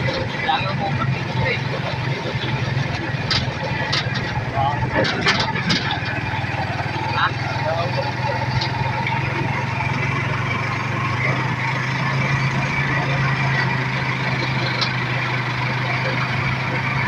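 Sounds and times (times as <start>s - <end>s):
motorcycle engine running: 0.0s - 17.0s
road noise: 0.0s - 17.0s.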